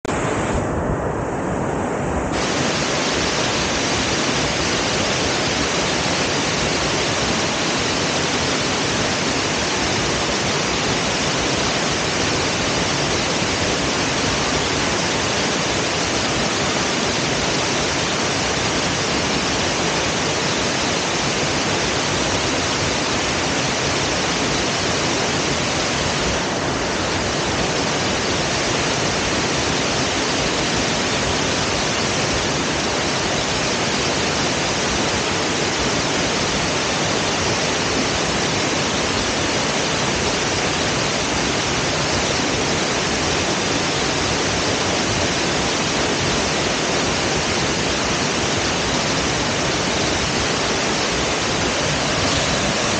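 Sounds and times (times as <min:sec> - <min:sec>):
waterfall and stream rushing: 0:00.0 - 0:52.9.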